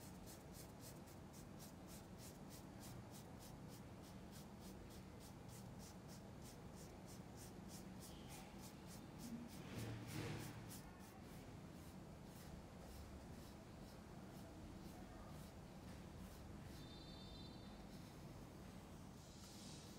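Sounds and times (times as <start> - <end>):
paintbrush scrubbing on canvas: 0.0 - 17.0.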